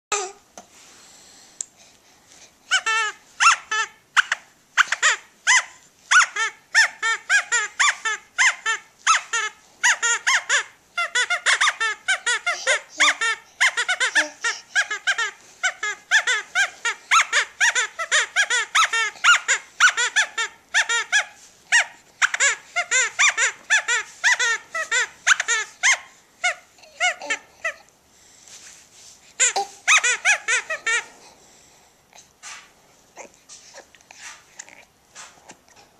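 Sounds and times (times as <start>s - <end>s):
rubber toy squeaking: 2.7s - 27.8s, 29.4s - 31.1s.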